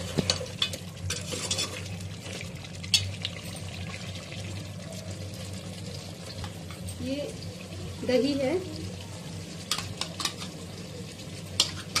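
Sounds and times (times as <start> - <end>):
food sizzling: 0.0 - 12.0
metal skimmer scraping a pot: 1.0 - 2.0.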